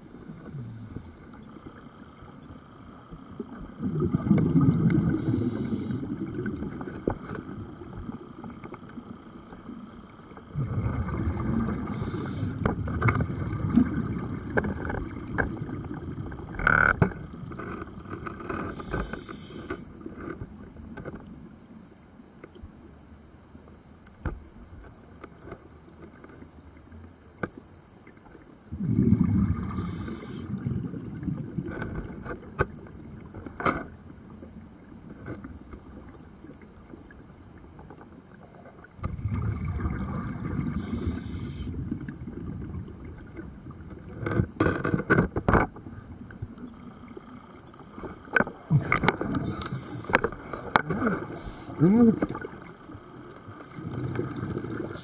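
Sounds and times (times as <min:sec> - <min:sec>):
diver breathing through regulator: 0:05.1 - 0:06.2, 0:11.8 - 0:12.7, 0:29.6 - 0:30.6, 0:40.7 - 0:41.8.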